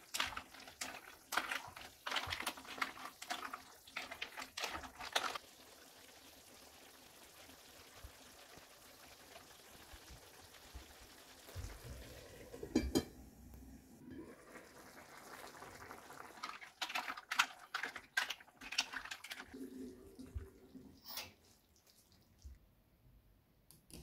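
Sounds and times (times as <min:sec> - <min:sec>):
sauce bubbling in frying pan: 0:00.0 - 0:13.1, 0:14.0 - 0:21.0
metal lid clanking on pan: 0:12.7 - 0:13.1.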